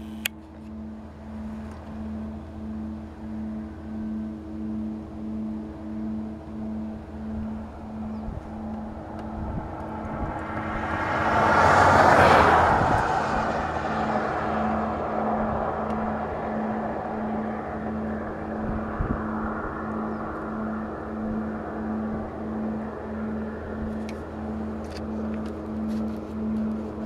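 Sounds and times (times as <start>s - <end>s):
low pulsing hum: 0.0s - 27.0s
car passing by: 6.6s - 27.0s.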